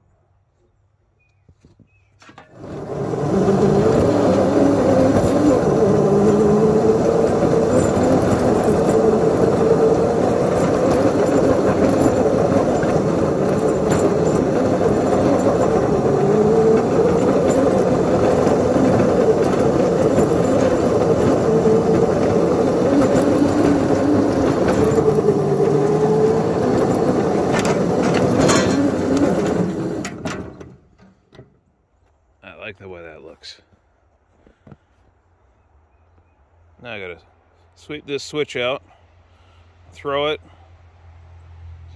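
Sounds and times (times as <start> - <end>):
miniature locomotive engine running: 2.4 - 30.8.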